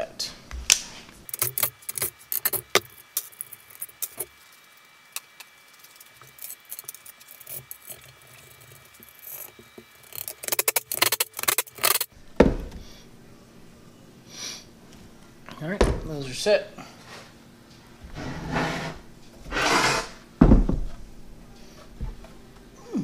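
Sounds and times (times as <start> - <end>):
heavy wooden thump: 12.4 - 12.8, 15.8 - 16.1, 20.4 - 21.0.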